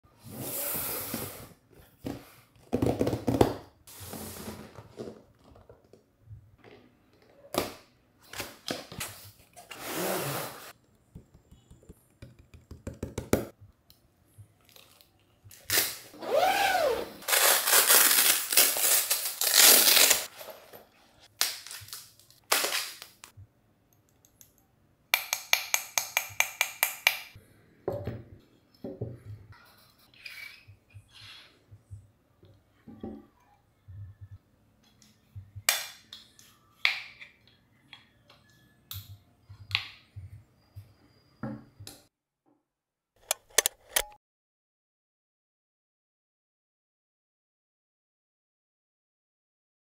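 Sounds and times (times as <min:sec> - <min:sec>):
zipper being pulled: 0:09.7 - 0:10.7, 0:16.1 - 0:20.3
nylon bag rustling: 0:16.2 - 0:20.7.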